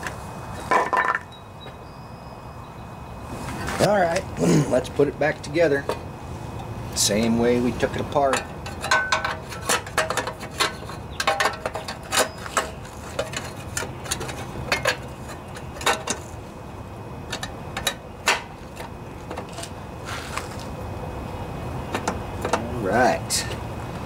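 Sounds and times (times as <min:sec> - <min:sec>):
hands clicking on engine parts: 0:08.3 - 0:16.4, 0:17.2 - 0:20.7, 0:21.9 - 0:22.7.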